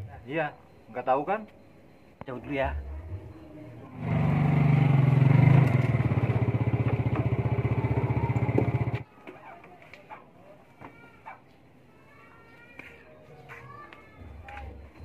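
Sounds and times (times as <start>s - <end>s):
scooter engine idling: 3.9s - 9.0s.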